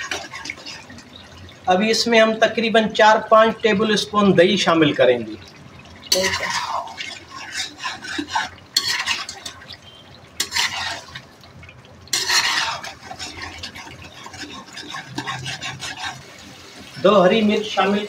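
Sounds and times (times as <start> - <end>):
metal spatula scraping wok: 6.1 - 9.7, 10.4 - 11.2, 12.1 - 16.4.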